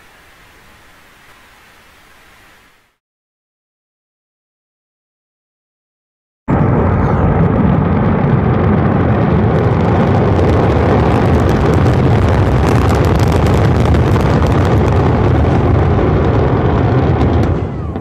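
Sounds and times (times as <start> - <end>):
deep rocket rumble: 6.5 - 18.0
dense crackling: 6.5 - 18.0.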